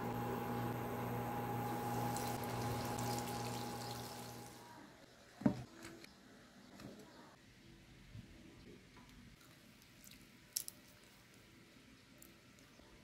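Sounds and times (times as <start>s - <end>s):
electric hum: 0.0s - 4.6s
chicken sizzling in frying oil: 1.4s - 4.6s.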